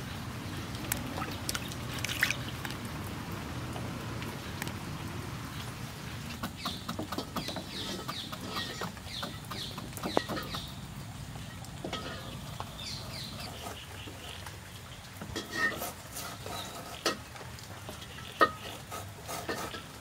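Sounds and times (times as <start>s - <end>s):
birds chirping: 4.3s - 15.2s.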